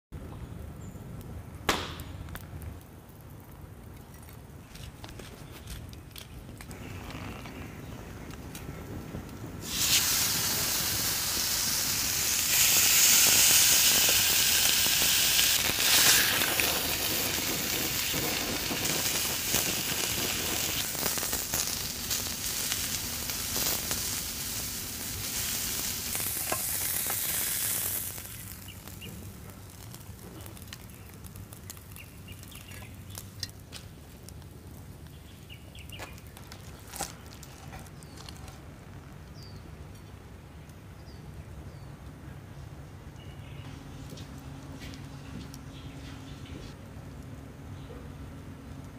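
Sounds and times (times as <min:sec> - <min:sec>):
steak sizzling in a skillet: 0:09.6 - 0:29.0.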